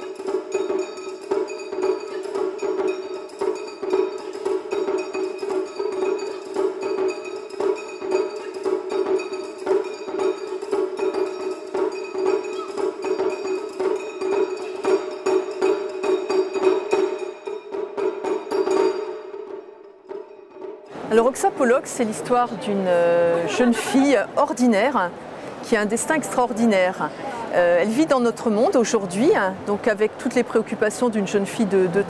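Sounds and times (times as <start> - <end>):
fast taiko drumming: 0.0 - 22.6.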